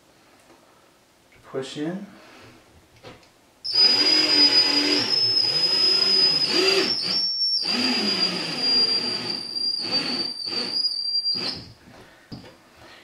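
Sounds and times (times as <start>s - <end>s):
cordless drill whining: 3.7s - 11.8s.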